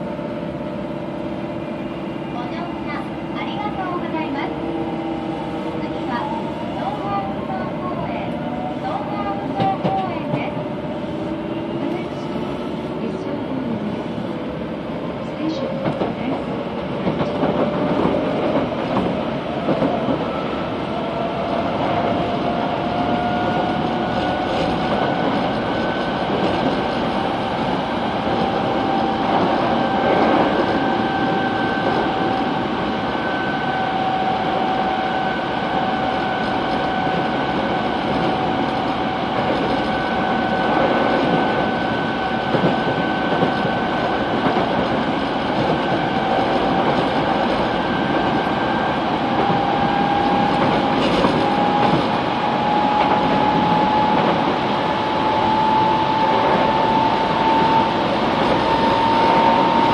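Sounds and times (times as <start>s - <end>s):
wheels rumbling on rail: 0.0s - 59.9s
train motor whine: 47.6s - 59.9s.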